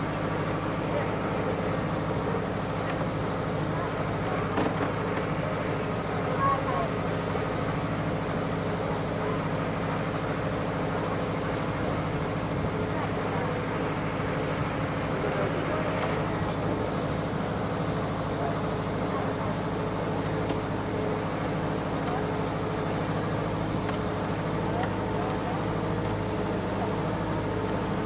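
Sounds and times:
tractor engine running: 0.0s - 28.0s
people talking faintly: 0.1s - 28.0s.

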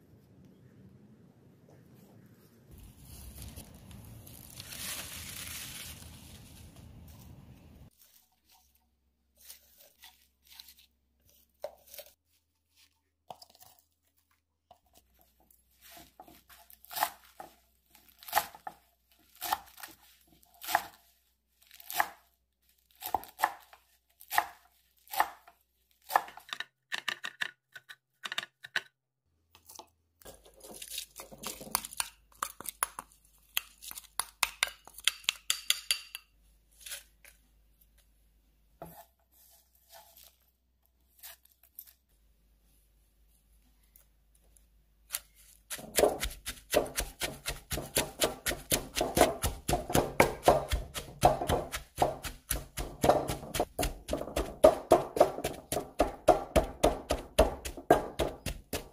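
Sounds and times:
soft handling sounds: 1.6s - 18.1s, 36.4s - 45.7s
knife chopping on wooden board: 45.7s - 58.9s.

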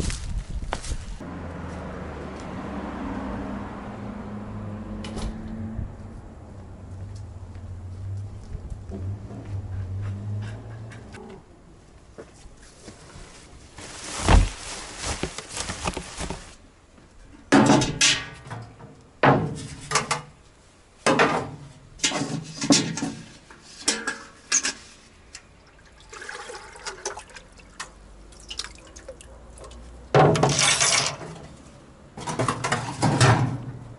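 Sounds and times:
water splashing into metal tank: 25.6s - 31.5s.

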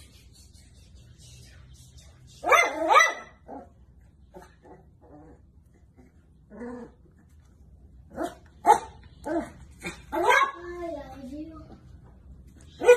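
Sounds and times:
dog barking: 2.4s - 3.5s, 8.2s - 10.6s.

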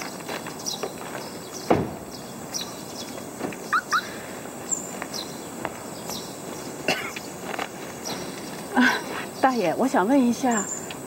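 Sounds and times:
rising bird chirps: 0.0s - 7.3s
steady hiss: 0.0s - 11.0s.

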